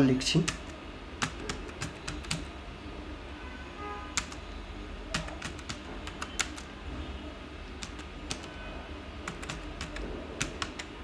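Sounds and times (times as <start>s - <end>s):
keyboard typing: 0.4s - 2.6s, 4.2s - 4.4s, 5.1s - 6.7s, 7.7s - 8.5s, 9.2s - 11.0s.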